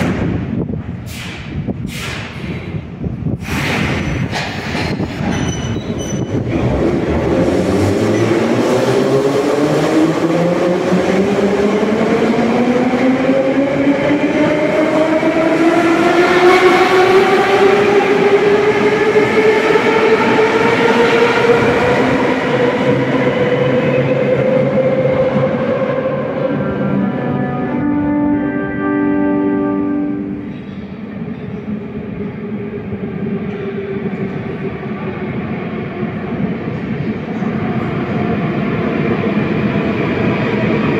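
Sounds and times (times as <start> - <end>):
train knocks: 0.0 - 8.6
rumble of train wheels: 0.0 - 40.9.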